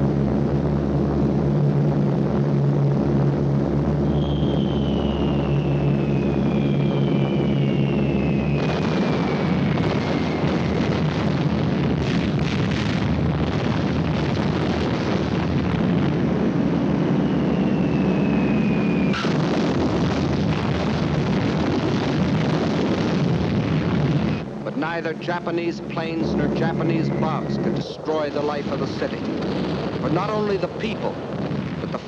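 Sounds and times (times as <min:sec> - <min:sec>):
bomb explosions: 0:00.0 - 0:32.0
continuous rumble of explosions: 0:00.0 - 0:32.0
falling bomb whistles: 0:04.0 - 0:11.3, 0:16.8 - 0:20.0.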